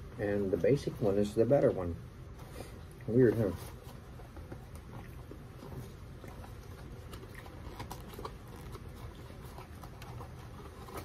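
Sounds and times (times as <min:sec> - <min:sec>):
paperboard box crackling and scraping: 0:07.6 - 0:11.0.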